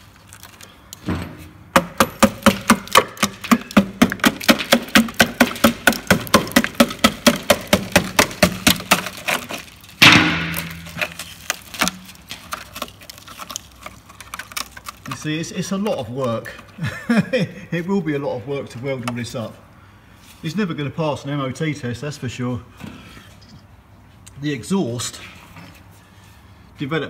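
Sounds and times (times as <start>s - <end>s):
crunching hit on rusted metal: 1.0s - 15.8s
rapid knocking on rusted steel: 1.7s - 12.0s.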